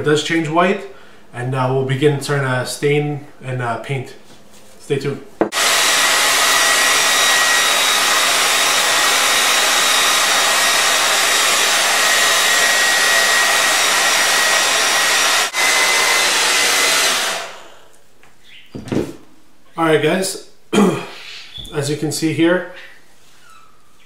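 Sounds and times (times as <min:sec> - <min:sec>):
hair dryer blowing air: 0:05.4 - 0:18.0.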